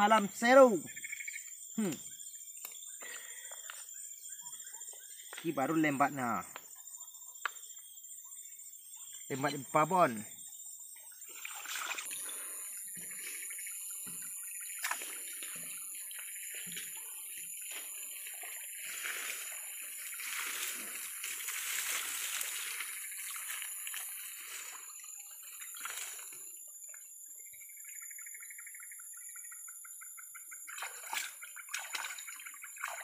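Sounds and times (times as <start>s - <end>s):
fish thrashing and splashing water: 11.3s - 13.4s, 14.0s - 24.8s, 25.4s - 26.4s, 30.7s - 33.0s.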